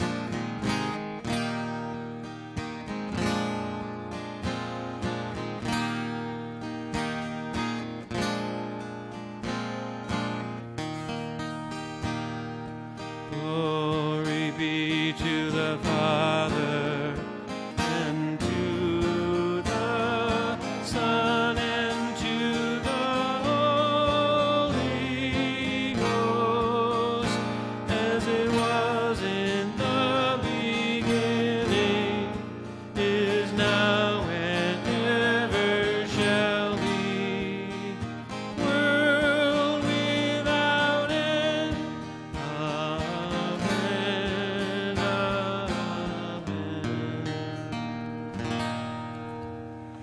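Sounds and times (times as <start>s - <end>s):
acoustic guitar strumming: 0.0s - 50.0s
man singing into a microphone: 13.1s - 47.8s.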